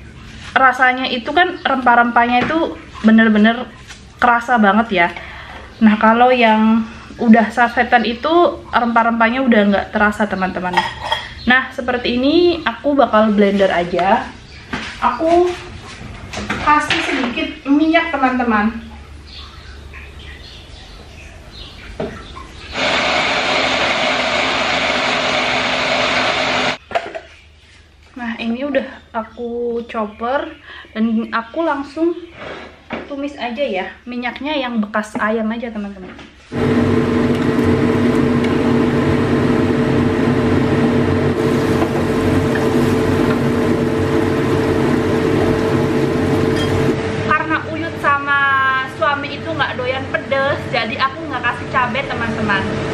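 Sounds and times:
mechanical hum: 0:00.0 - 0:52.9
electric food chopper whirring: 0:22.7 - 0:26.8, 0:36.5 - 0:47.1
spice paste sizzling in oil: 0:41.4 - 0:46.9.

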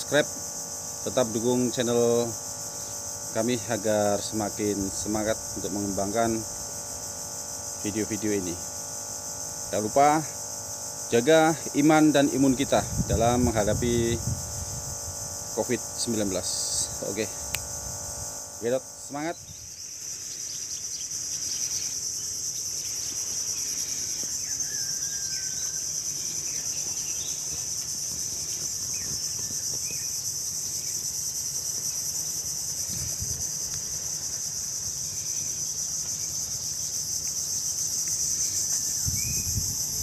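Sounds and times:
high-pitched insect chorus buzzing: 0:00.0 - 0:40.0.

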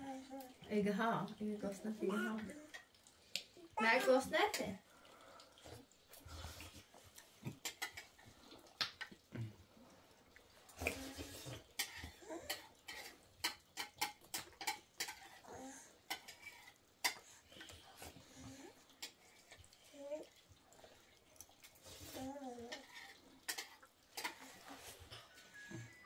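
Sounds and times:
dishes and cutlery clinking: 0:07.5 - 0:08.2, 0:10.8 - 0:15.4, 0:16.1 - 0:17.8, 0:22.7 - 0:26.0.

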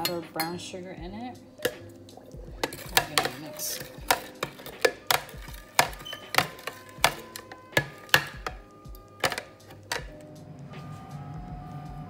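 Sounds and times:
spoon clinking against glass: 0:02.6 - 0:08.6.

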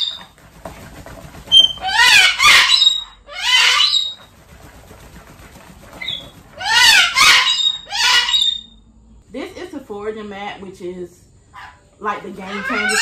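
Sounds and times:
cockatoo squawking: 0:00.0 - 0:00.3, 0:01.5 - 0:04.3, 0:06.0 - 0:08.7, 0:11.6 - 0:13.0
wings flapping: 0:00.0 - 0:02.8, 0:03.6 - 0:07.7.

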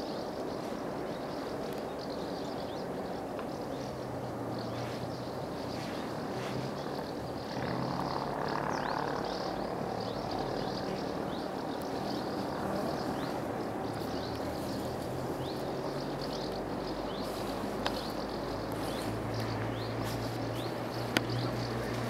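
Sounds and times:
faint outdoor hiss: 0:00.0 - 0:22.0
small bird chirping: 0:00.0 - 0:22.0
distant engine drone: 0:02.7 - 0:22.0.

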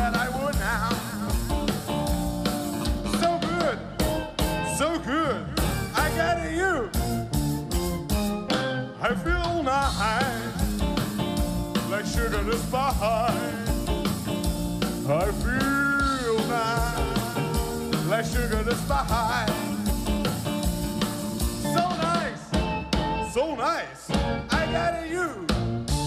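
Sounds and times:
person singing: 0:00.0 - 0:01.8, 0:11.7 - 0:14.1, 0:15.0 - 0:20.0, 0:23.3 - 0:25.5
steady drum beat: 0:00.0 - 0:04.8, 0:05.5 - 0:23.4, 0:24.1 - 0:26.0
rock and roll band music: 0:00.0 - 0:26.0.

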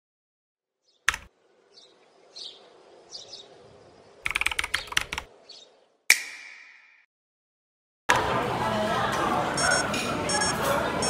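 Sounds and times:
rapid sharp clicks: 0:04.2 - 0:05.3
sharp click: 0:06.1 - 0:06.7.

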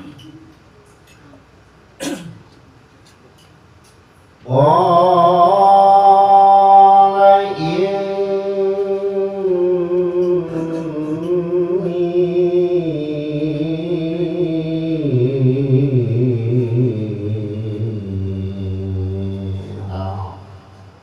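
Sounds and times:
man reciting melodically: 0:04.4 - 0:21.0.

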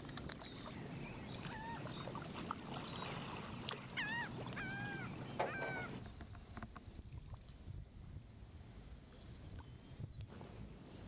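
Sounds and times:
birds calling: 0:00.4 - 0:07.0.

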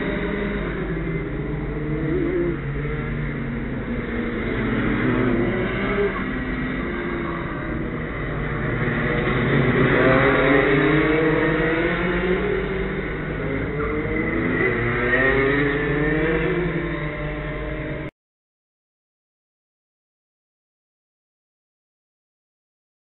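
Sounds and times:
go-kart engines running: 0:00.0 - 0:18.1.

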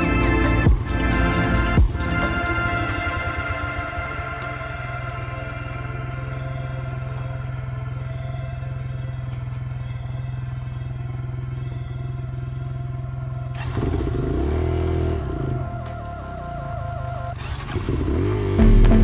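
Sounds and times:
dirt bike engine: 0:00.0 - 0:19.0.

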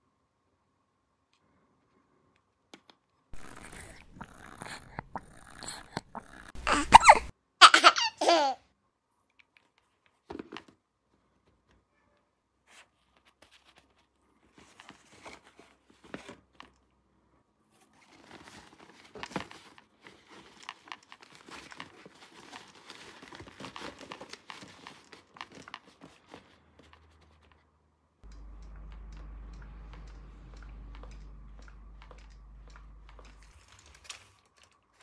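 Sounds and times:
packaging clicks: 0:28.2 - 0:35.0
packaging crinkling and tearing: 0:32.9 - 0:35.0.

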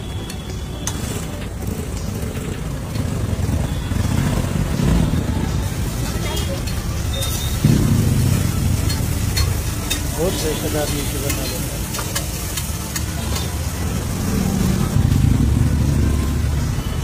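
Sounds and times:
vegetables sizzling: 0:05.5 - 0:17.0.

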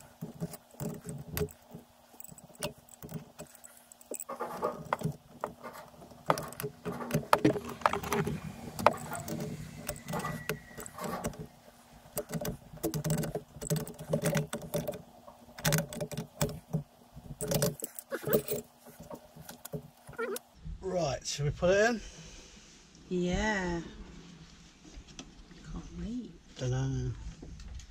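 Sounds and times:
metal tools clinking and knocking: 0:00.0 - 0:11.6, 0:17.4 - 0:20.4.

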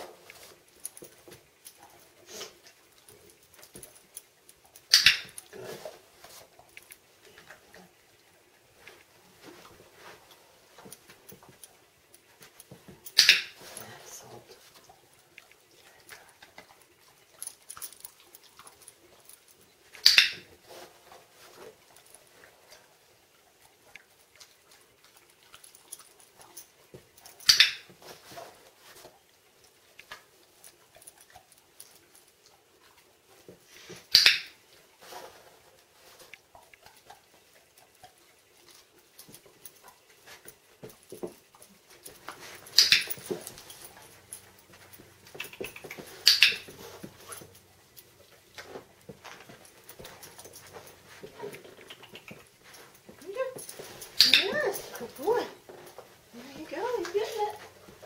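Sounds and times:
dog sniffing and mouthing: 0:00.0 - 0:08.0, 0:08.8 - 0:58.0
faint ticks and scratching: 0:00.0 - 0:58.0
dog mouthing rope handle: 0:36.2 - 0:56.2.

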